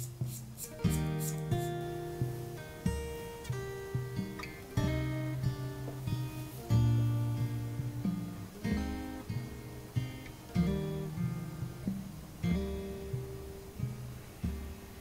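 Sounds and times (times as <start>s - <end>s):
acoustic guitar chords: 0.0s - 15.0s.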